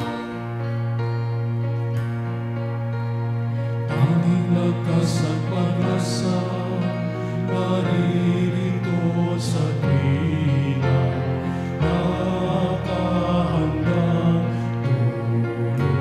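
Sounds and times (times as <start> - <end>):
keyboard: 0.0 - 16.0
choir singing worship song: 3.9 - 16.0.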